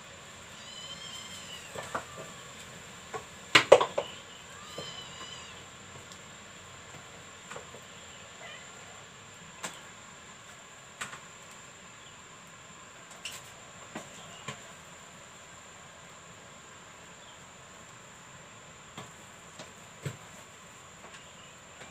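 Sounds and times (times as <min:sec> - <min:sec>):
cat mewing faintly: 0:00.5 - 0:02.8, 0:04.0 - 0:05.7, 0:08.1 - 0:09.1.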